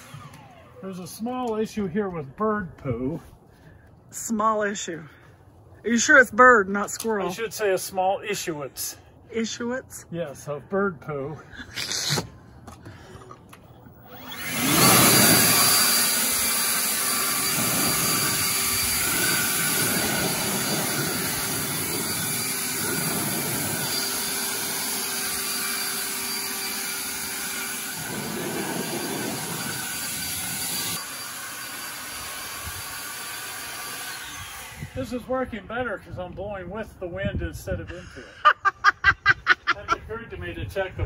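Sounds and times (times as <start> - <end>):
leaf blower blowing: 0.0 - 1.2, 13.0 - 35.3.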